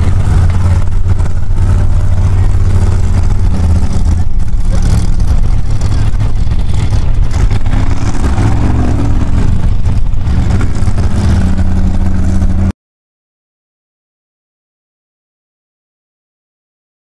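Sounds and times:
buggy engine revving: 0.0s - 12.7s.

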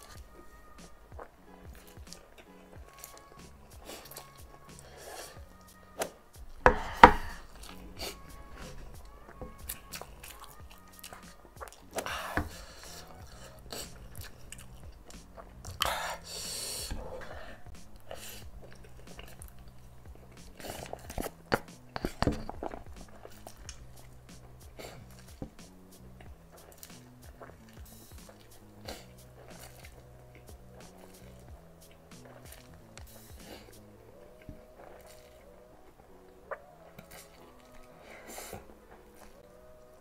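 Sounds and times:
soft background music: 0.0s - 40.0s
person slurping noodles: 2.8s - 25.6s, 26.6s - 35.4s.

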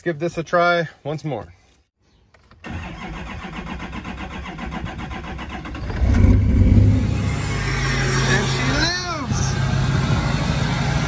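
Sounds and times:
diesel engine cranking: 2.4s - 11.0s
diesel engine idling: 5.4s - 11.0s.

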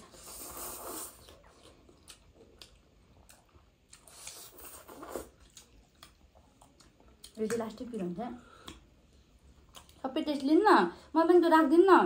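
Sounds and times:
noodles being slurped: 0.0s - 2.2s, 4.0s - 6.1s
wet mouth clicks chewing: 0.6s - 7.6s.

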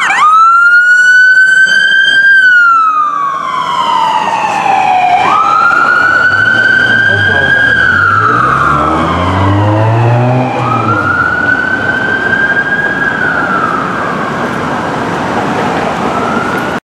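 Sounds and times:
electronic wail siren: 0.0s - 14.8s
street traffic noise: 0.0s - 16.8s
heavy engine drone: 4.4s - 15.2s.

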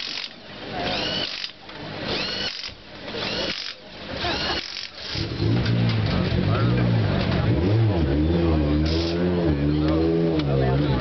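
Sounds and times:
power tool whining: 0.0s - 4.9s.

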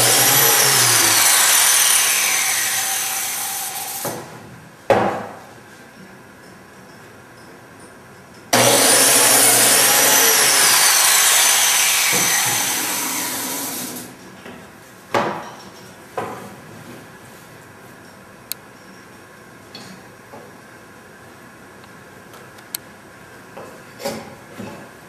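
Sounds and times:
biscuit joiner motor: 0.0s - 4.0s, 8.6s - 14.1s.

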